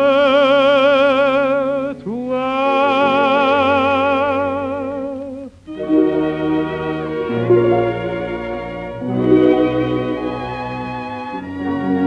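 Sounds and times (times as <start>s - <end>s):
man singing with vibrato: 0.0s - 6.2s
orchestra playing: 5.6s - 12.0s.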